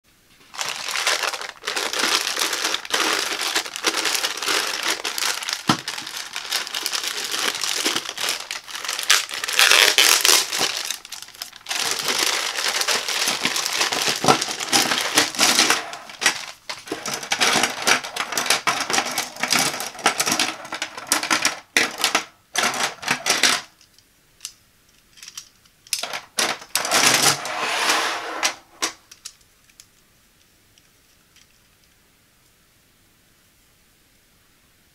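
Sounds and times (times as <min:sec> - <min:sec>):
plastic bag crinkling: 0:00.4 - 0:23.8
plastic hangers clicking together: 0:01.3 - 0:27.2.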